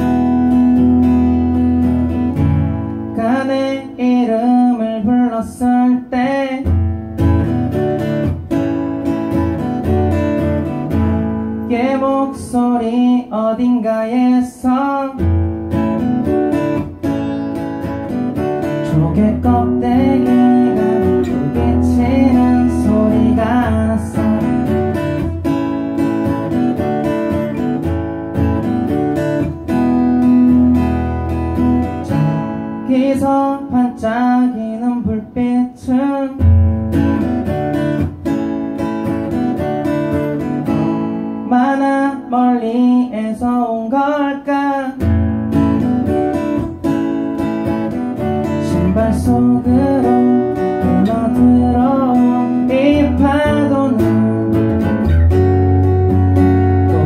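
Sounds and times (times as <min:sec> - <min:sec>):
acoustic guitar strumming: 0:00.0 - 0:57.0
person singing: 0:03.1 - 0:06.9, 0:11.6 - 0:15.4, 0:18.5 - 0:25.4, 0:31.8 - 0:36.6, 0:41.4 - 0:45.2, 0:48.2 - 0:55.4, 0:56.6 - 0:57.0.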